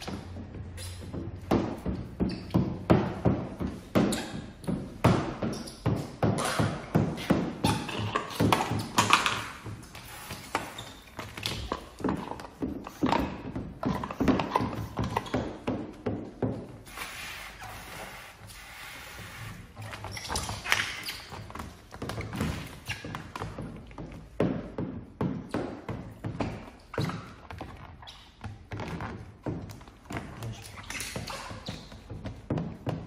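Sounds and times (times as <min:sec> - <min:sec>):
squeegee rubbing film: 0:06.4 - 0:13.1, 0:16.8 - 0:23.4.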